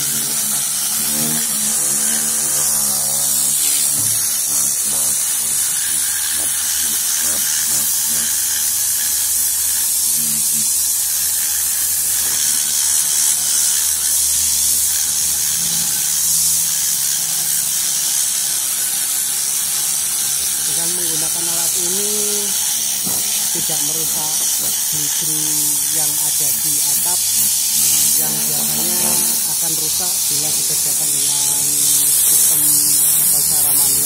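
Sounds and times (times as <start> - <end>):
compressed air hissing: 0.0 - 34.0.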